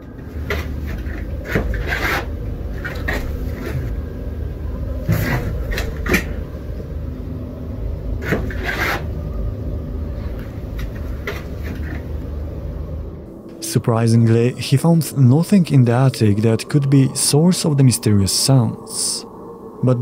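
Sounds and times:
steady low rumble: 0.0s - 20.0s
scraping and rubbing on wood: 0.2s - 4.0s, 5.1s - 6.3s, 8.2s - 9.1s.

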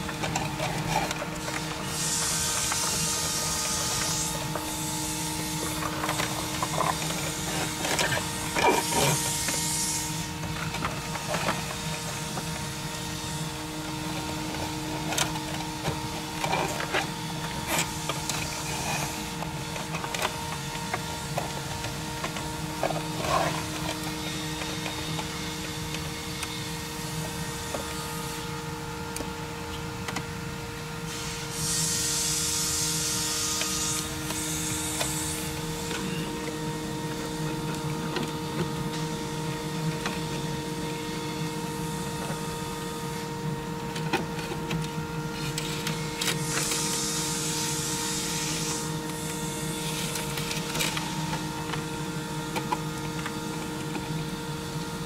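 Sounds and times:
machine hum with held tones: 0.0s - 55.0s
hiss: 1.8s - 5.8s, 31.1s - 35.2s.

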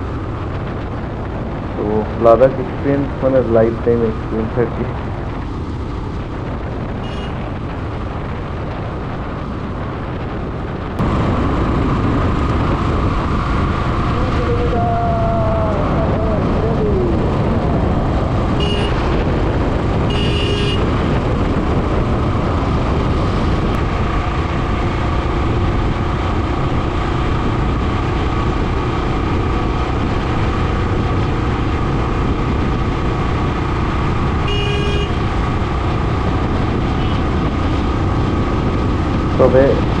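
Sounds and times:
motorcycle wind and road noise: 0.0s - 40.0s
vehicle horns tooting: 7.0s - 7.4s, 18.5s - 19.2s, 20.0s - 20.9s, 34.4s - 35.3s.

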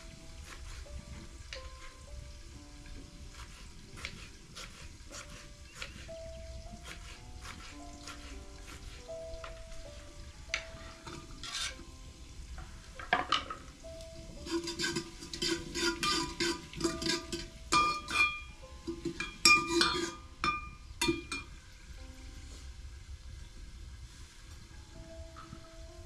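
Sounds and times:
soft background music: 0.0s - 26.0s
metal spoon stirring in pot: 10.8s - 11.8s, 14.4s - 21.5s.

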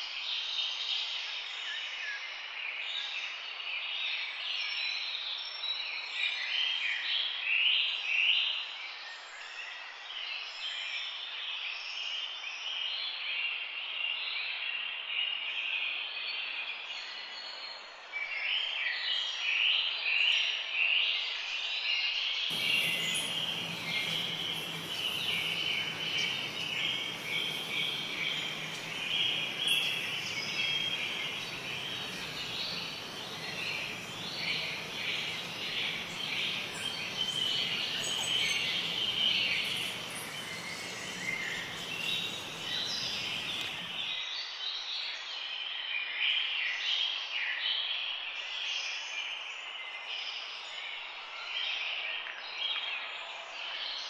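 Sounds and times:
birds chirping in chorus: 22.5s - 44.1s
background hiss: 22.5s - 44.2s.

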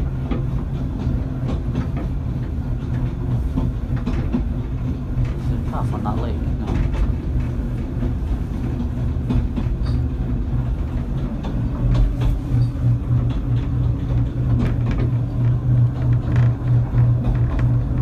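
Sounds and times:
railway carriage rumbling: 0.0s - 18.0s
track clicks and knocks: 0.0s - 18.0s.

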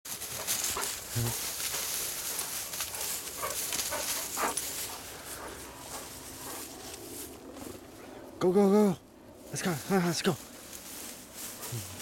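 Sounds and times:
dogs running through long grass: 0.1s - 8.2s, 9.4s - 12.0s.

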